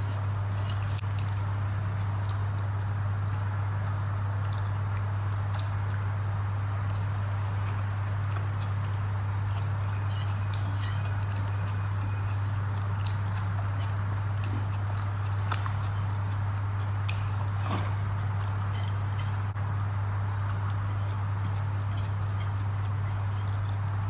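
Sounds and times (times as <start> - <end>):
fingers mixing rice: 0.0 - 1.2, 6.8 - 19.6, 20.2 - 24.0
chewing: 0.0 - 1.4, 4.2 - 24.0
steady low hum: 0.0 - 24.0.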